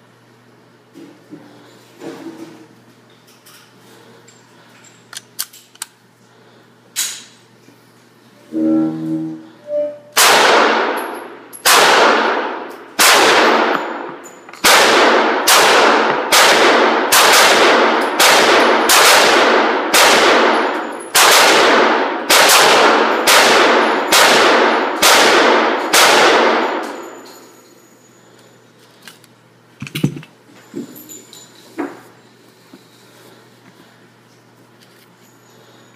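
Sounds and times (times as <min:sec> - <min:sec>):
pistol shots ringing: 0:10.2 - 0:27.2.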